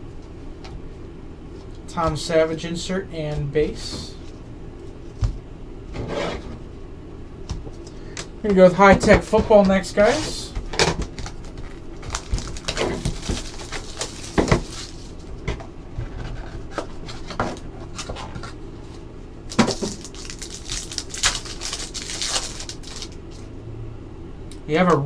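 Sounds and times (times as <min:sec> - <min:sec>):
foil wrapper crinkling: 0:11.0 - 0:15.3, 0:19.5 - 0:23.5.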